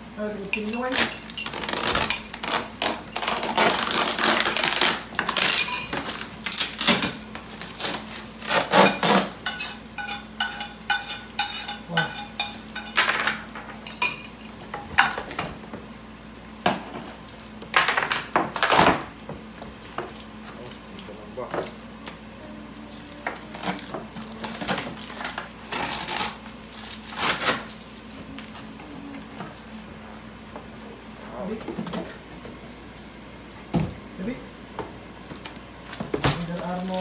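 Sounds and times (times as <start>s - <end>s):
packing tape ripping off box: 0.9s - 9.4s, 18.5s - 19.1s, 22.9s - 28.2s
tape crinkling: 0.9s - 9.4s, 19.8s - 28.6s.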